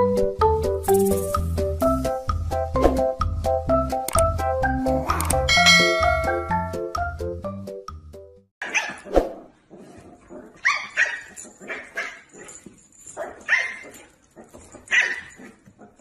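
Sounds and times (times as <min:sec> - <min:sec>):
dog barking and yipping: 0:08.6 - 0:16.0.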